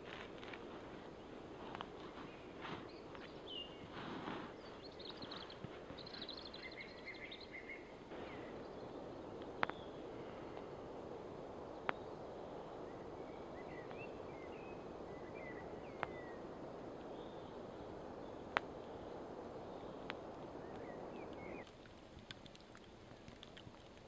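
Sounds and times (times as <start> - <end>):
faint bird chirps: 2.1 - 10.8, 11.7 - 21.6
burning wood popping: 20.0 - 24.0.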